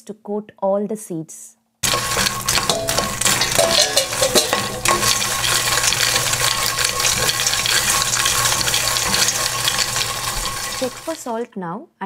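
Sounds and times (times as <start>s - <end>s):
seeds clattering in metal pan: 1.8s - 11.4s.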